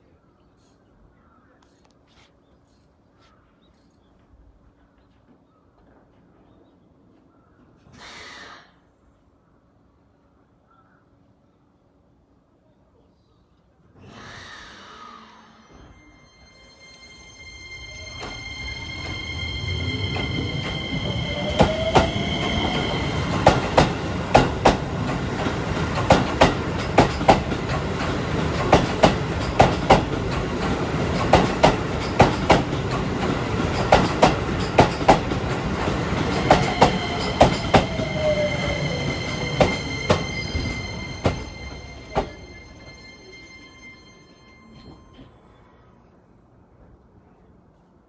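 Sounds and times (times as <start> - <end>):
train high whine: 14.0 - 46.9
train rumble: 15.3 - 45.9
wheels clicking over rail joints: 23.3 - 38.0.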